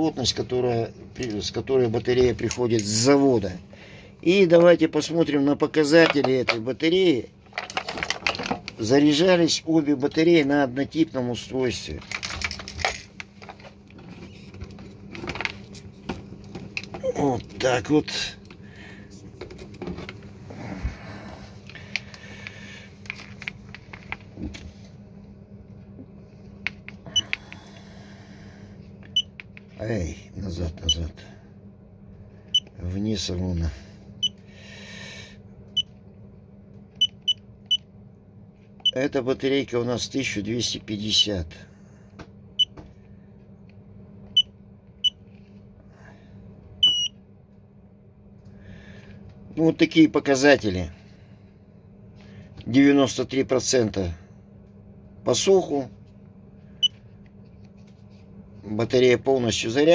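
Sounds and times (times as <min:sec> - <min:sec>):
low hum: 0:00.0 - 0:49.9
battery tester beeping: 0:46.8 - 0:47.1.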